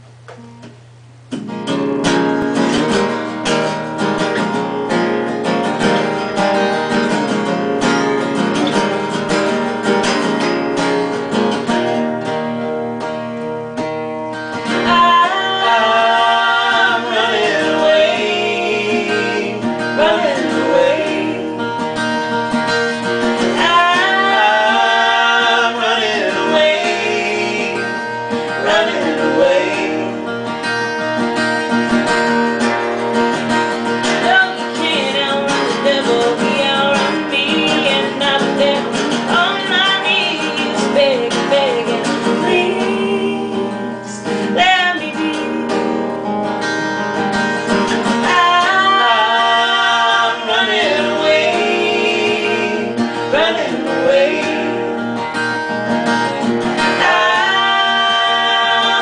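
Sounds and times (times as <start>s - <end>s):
acoustic guitars strumming: 0.0s - 59.0s
man and woman singing: 14.7s - 22.1s, 23.0s - 30.6s, 34.1s - 46.0s, 48.0s - 55.4s, 56.8s - 59.0s.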